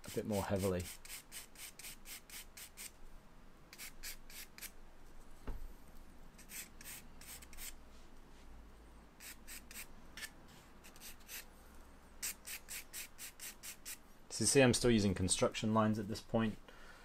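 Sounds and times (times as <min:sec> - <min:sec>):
charcoal scratching on paper: 0:00.0 - 0:02.9, 0:06.4 - 0:07.8, 0:09.2 - 0:11.5.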